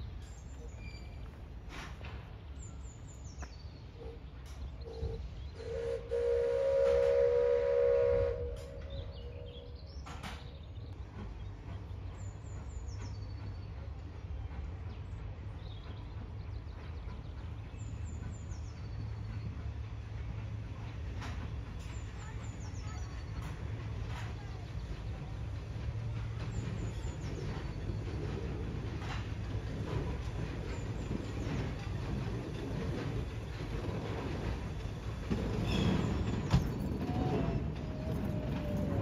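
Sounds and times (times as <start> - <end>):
train rumbling: 0.0 - 39.0
faint birds chirping: 2.2 - 6.4, 8.0 - 39.0
steam locomotive whistle: 4.9 - 9.7.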